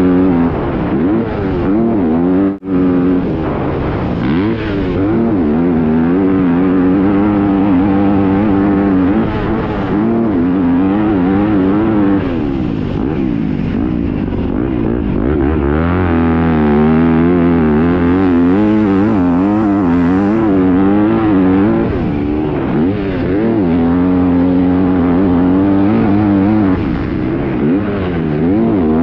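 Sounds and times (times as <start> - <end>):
dirt bike engine revving: 0.0 - 29.0.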